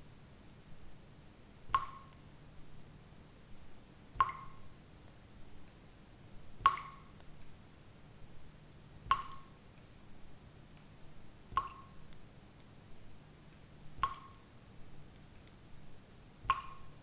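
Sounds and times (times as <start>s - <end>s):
water droplets dripping: 1.7s - 2.2s, 4.2s - 4.7s, 6.6s - 7.3s, 9.1s - 9.6s, 11.5s - 12.7s, 14.0s - 14.6s, 16.4s - 17.0s.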